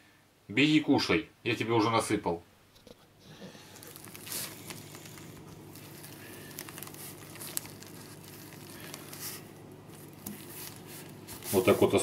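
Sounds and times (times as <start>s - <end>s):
steady low hum: 2.9s - 12.0s.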